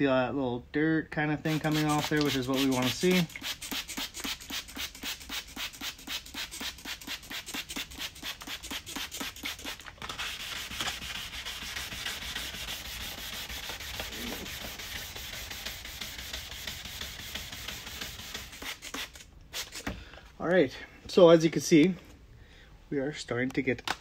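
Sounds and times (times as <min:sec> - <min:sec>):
sandpaper rubbing plastic: 0:01.5 - 0:19.9.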